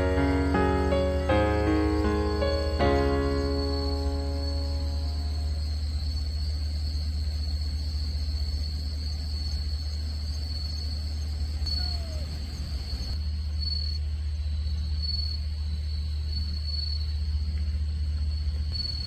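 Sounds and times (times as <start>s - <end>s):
low hum: 0.0s - 7.7s
crickets trilling: 0.0s - 19.0s.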